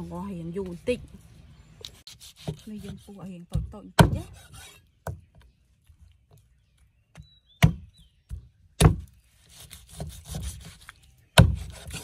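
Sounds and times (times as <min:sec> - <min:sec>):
blade sawing and scraping: 0:01.8 - 0:03.4, 0:04.0 - 0:04.9, 0:09.3 - 0:12.0
cleaver chopping on wooden board: 0:02.4 - 0:05.3, 0:07.6 - 0:09.1, 0:11.4 - 0:12.0.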